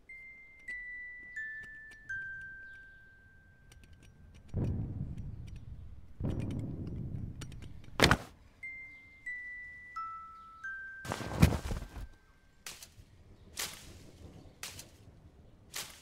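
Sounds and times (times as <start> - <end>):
soft bell-like notes: 0.0 - 4.2, 8.5 - 12.6
sparse chime-like music: 0.0 - 5.4, 8.5 - 13.5
low rumbles: 4.5 - 8.0
sharp crack: 15.7 - 16.0.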